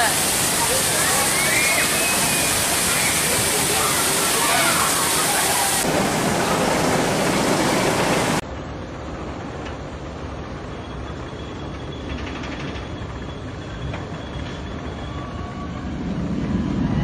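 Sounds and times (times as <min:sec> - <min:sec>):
loud rushing noise: 0:00.0 - 0:08.4
roller coaster rumbling on track: 0:00.0 - 0:17.0.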